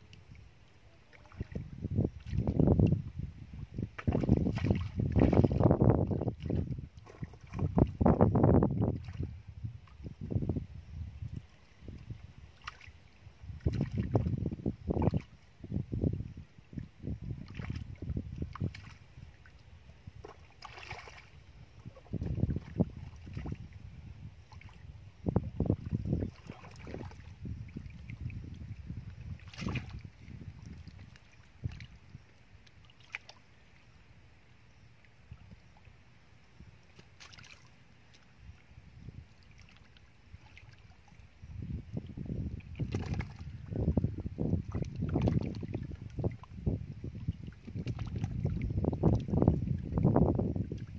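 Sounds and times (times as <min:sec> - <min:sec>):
low steady rumble: 0:00.0 - 0:50.9
hands splashing in shallow water: 0:04.0 - 0:05.7, 0:20.2 - 0:21.4, 0:29.4 - 0:30.1, 0:36.9 - 0:37.7, 0:42.8 - 0:43.5
hands splashing in muddy water: 0:42.8 - 0:43.4.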